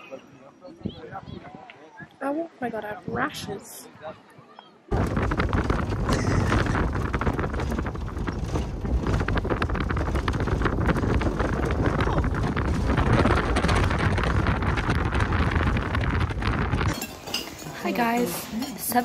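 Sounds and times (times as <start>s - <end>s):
bus engine and road rumble: 4.9s - 17.0s
rattling and knocking in cabin: 4.9s - 17.0s.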